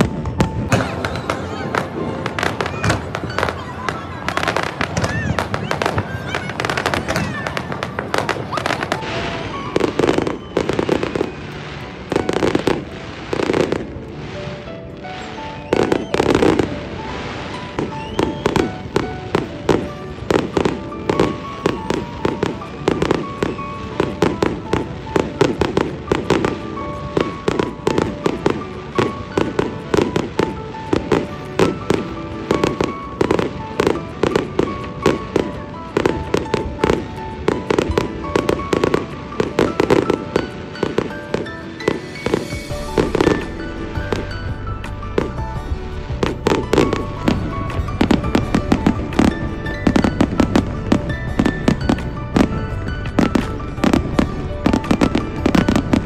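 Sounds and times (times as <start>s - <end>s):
background music: 0.0s - 56.0s
fireworks bursting: 0.0s - 56.0s.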